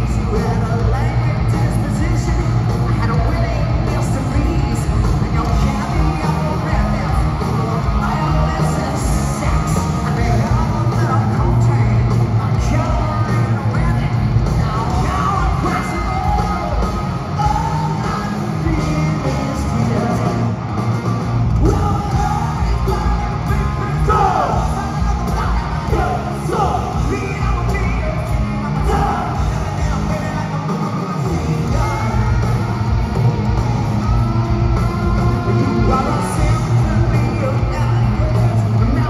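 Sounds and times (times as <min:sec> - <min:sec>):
hard rock band playing: 0:00.0 - 0:39.0
person yelling vocals: 0:21.6 - 0:27.9.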